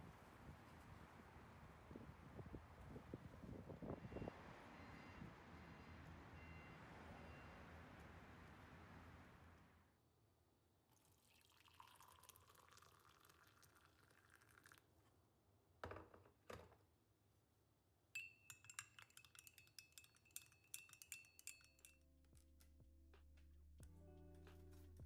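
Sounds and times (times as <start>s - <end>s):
water pouring into a mug: 11.0s - 15.0s
spoon clinking in a mug: 18.2s - 22.0s
soft music: 21.9s - 25.0s.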